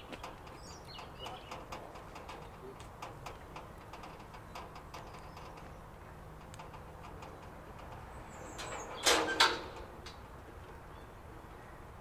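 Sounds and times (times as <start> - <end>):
faint clicks: 6.4 - 8.8.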